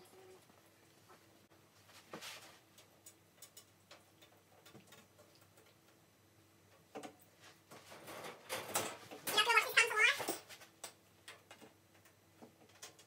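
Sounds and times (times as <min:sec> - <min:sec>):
metal grids clattering: 0:07.8 - 0:10.5.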